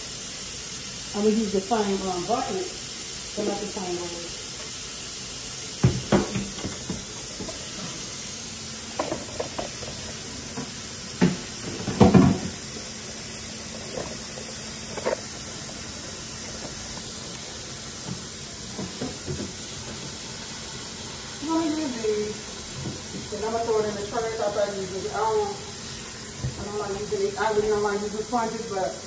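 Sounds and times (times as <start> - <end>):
household items knocking at sink: 5.8 - 7.6, 9.0 - 9.8, 10.6 - 12.6.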